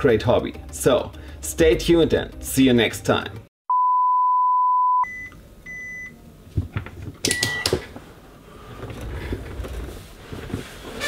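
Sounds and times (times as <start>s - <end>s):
low shuffling noise: 8.0s - 11.0s.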